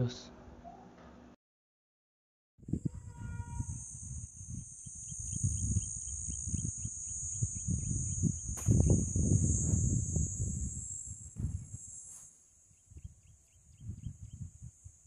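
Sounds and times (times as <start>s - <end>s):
low gusty rumble: 2.6s - 11.8s
insects chirring: 2.6s - 15.0s
brief tone: 2.8s - 12.3s
sharp click: 8.5s - 9.1s.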